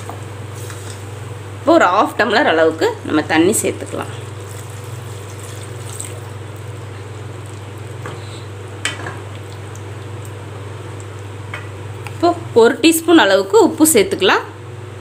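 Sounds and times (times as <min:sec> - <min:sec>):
steady low hum: 0:00.0 - 0:15.0
water pouring into a pan: 0:04.2 - 0:08.0.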